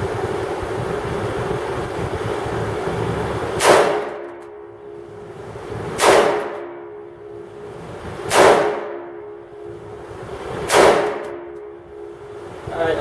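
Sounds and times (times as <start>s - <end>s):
steady hum: 0.0s - 13.0s
rifle shots echoing indoors: 3.6s - 4.9s, 6.0s - 7.1s, 8.3s - 9.6s, 10.6s - 11.7s.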